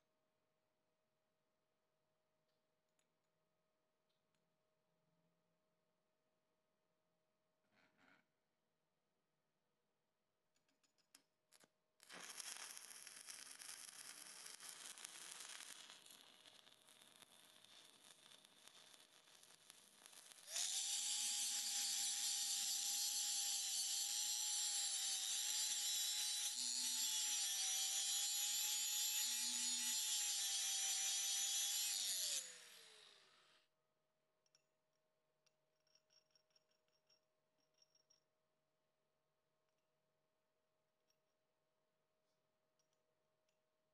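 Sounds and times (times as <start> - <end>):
welding arc crackling hiss: 12.1 - 27.2
angle grinder grinding steel: 20.5 - 33.5.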